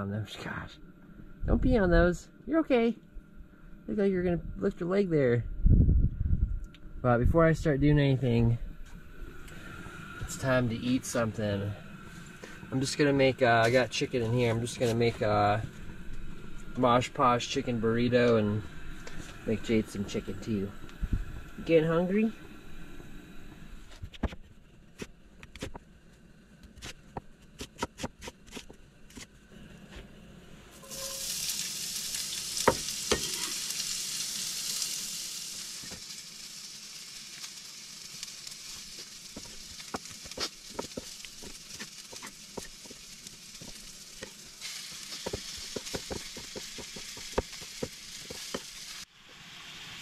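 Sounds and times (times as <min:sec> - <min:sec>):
skillet sizzling: 0:07.5 - 0:23.9, 0:30.7 - 0:50.0
knife chopping on wooden board: 0:26.8 - 0:29.3, 0:45.2 - 0:48.6.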